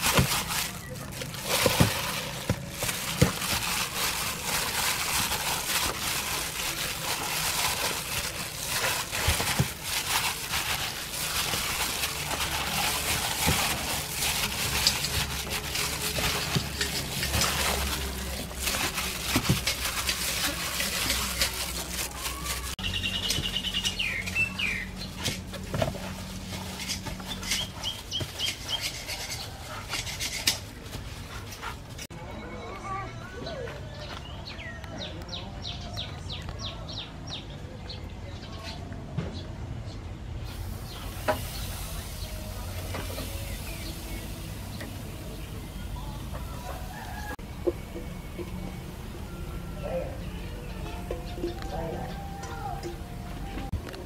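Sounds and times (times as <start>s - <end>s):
wet squelching of kneading: 0.0s - 32.1s
birds chirping: 0.6s - 30.5s, 32.3s - 53.8s.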